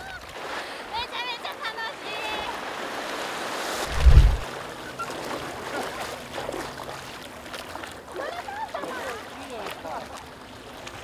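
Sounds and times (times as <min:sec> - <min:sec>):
water sloshing around surfboard: 0:00.0 - 0:11.0
loud low thump: 0:03.9 - 0:04.4.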